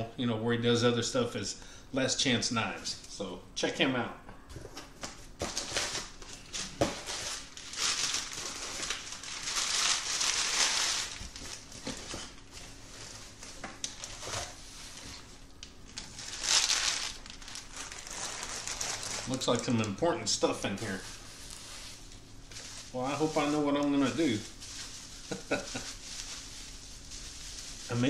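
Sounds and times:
packing paper crumpling: 0:05.4 - 0:28.0.

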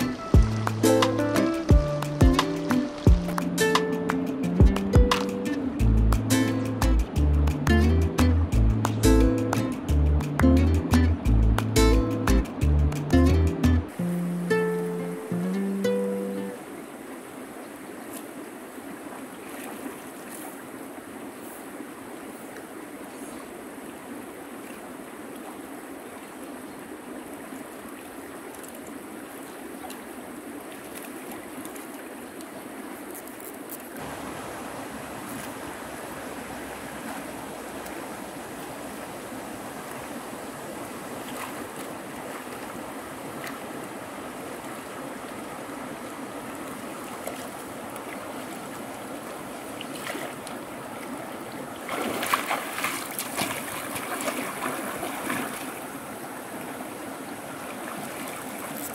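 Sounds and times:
river flowing: 0:00.0 - 0:58.9
choppy water splashing: 0:16.5 - 0:58.9.

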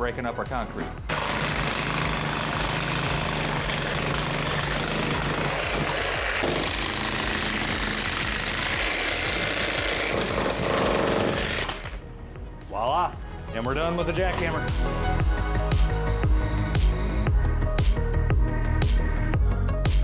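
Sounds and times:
jackhammer breaking concrete: 0:01.1 - 0:12.0.

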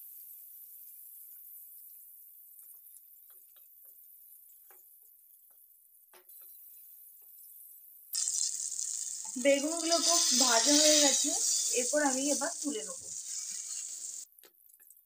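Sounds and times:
vegetables sizzling in oil: 0:00.0 - 0:05.3, 0:06.3 - 0:15.0
oil popping and spitting: 0:08.2 - 0:14.1.

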